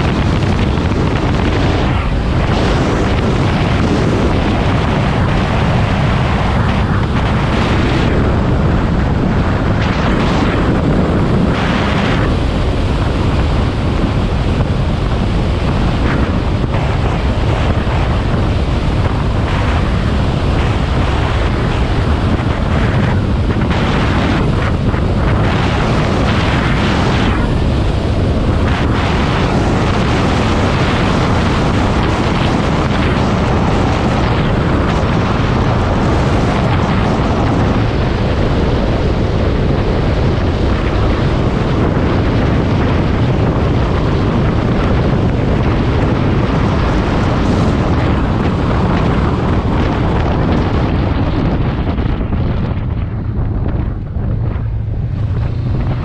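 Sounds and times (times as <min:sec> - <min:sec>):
wind rushing over microphone: 0:00.0 - 0:56.0
motorcycle engine running: 0:46.9 - 0:56.0.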